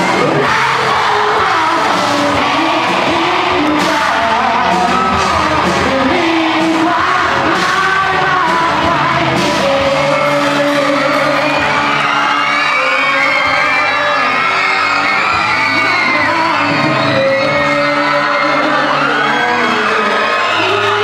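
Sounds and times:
bass guitar: 0.0 - 21.0
drum kit: 0.0 - 21.0
male singer: 0.0 - 21.0.

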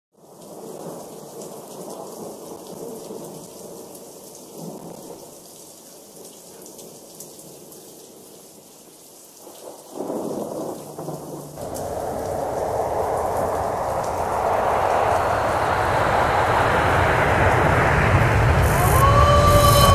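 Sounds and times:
steady rain: 0.2 - 19.9
thunder rumbling: 10.0 - 19.9.

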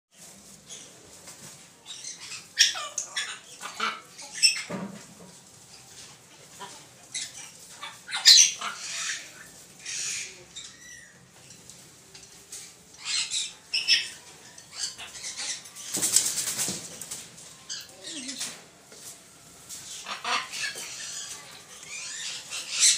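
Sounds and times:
parrots squawking and chattering: 1.7 - 18.7, 19.7 - 22.9.

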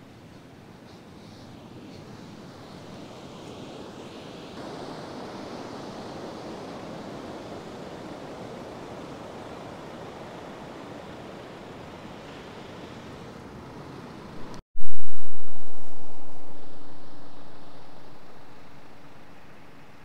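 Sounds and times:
ocean surf washing onto beach: 0.1 - 14.5.

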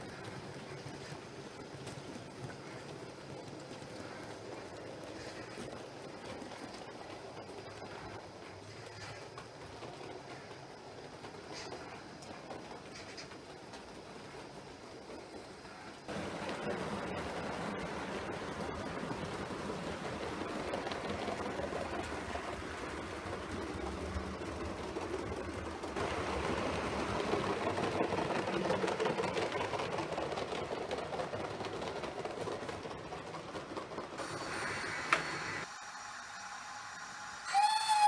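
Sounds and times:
model trains whirring and clattering: 0.0 - 38.0.

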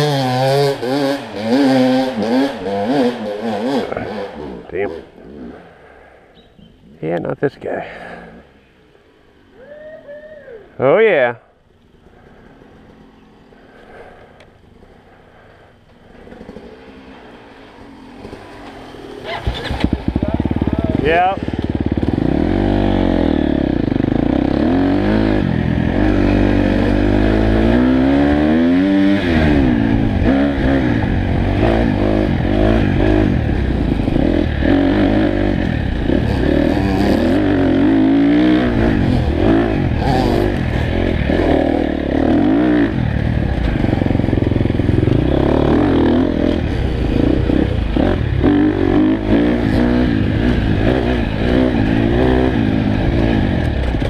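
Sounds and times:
dirt bike engine revving: 0.0 - 6.1, 12.0 - 54.0.

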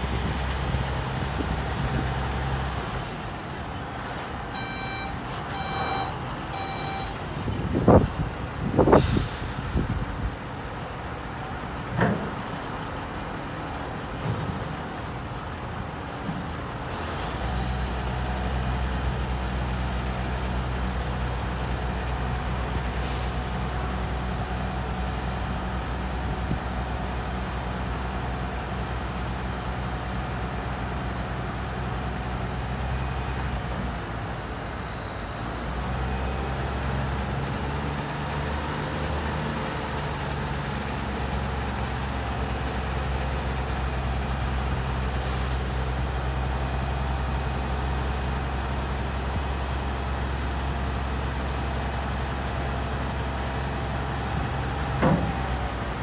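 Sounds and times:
truck diesel engine running: 0.0 - 11.8, 14.8 - 56.0
reversing alarm beeps: 4.5 - 7.2
air brake hissing: 8.9 - 10.0, 23.0 - 23.5, 45.2 - 45.8
air hiss: 9.0 - 9.9
hydraulic tipper body raising: 54.3 - 56.0.

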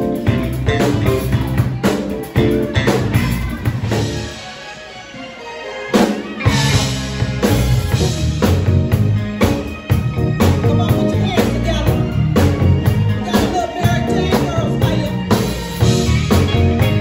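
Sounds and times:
electric bass: 0.0 - 4.5, 6.4 - 17.0
drum kit beat: 0.0 - 4.8, 5.9 - 17.0
guitar: 0.0 - 17.0
keyboard: 0.0 - 17.0.

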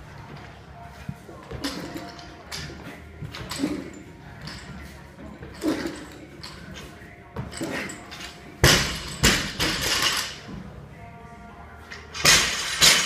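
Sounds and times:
barbell rattling: 12.1 - 13.0.

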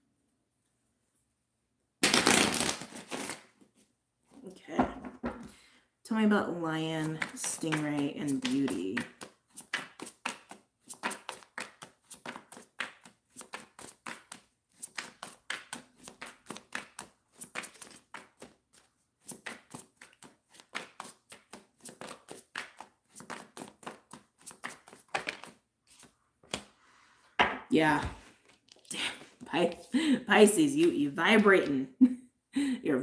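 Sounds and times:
cards being shuffled: 2.0 - 3.8, 7.0 - 26.7, 28.2 - 30.0.

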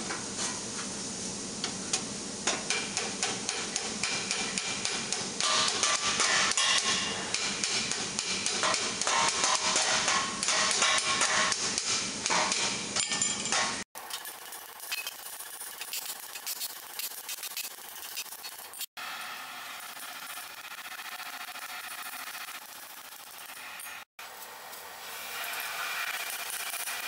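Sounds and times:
hammer striking hot steel: 1.9 - 13.9.

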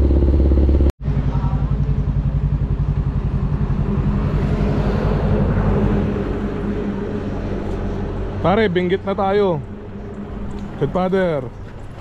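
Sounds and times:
motorcycle engine idling: 0.0 - 5.6.

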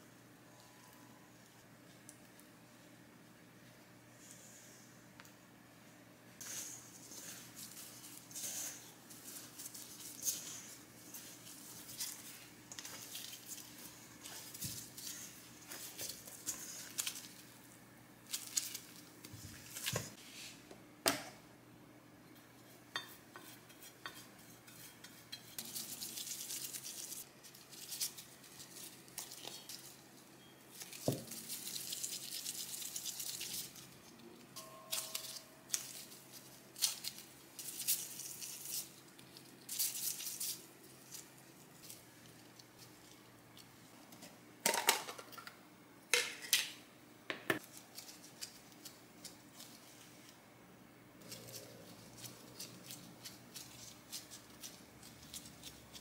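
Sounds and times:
hands kneading sticky dough: 6.4 - 20.2.

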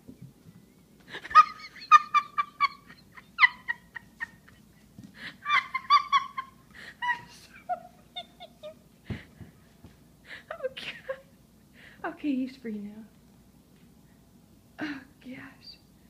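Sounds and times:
person giggling shrilly: 1.1 - 8.9.

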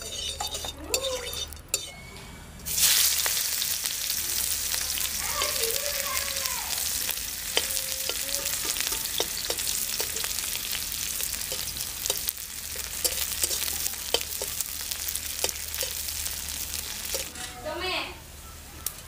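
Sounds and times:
onions sizzling in hot oil: 0.0 - 1.9, 2.7 - 19.0
metal spatula scraping pan: 0.0 - 2.1, 7.1 - 17.7.

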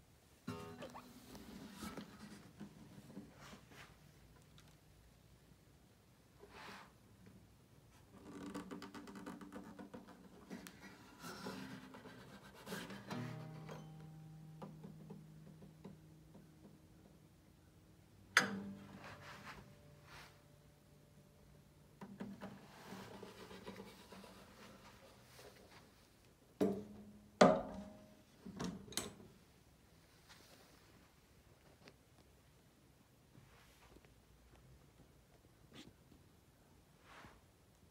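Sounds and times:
guitar strings ringing: 0.5 - 1.4, 13.1 - 16.3, 18.3 - 19.0
fingers tapping on guitar wood: 13.6 - 17.3.

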